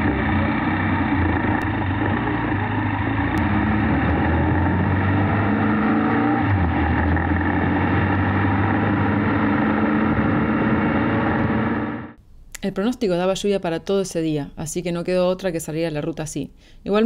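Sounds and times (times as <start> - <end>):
motorcycle engine running: 0.0 - 12.2.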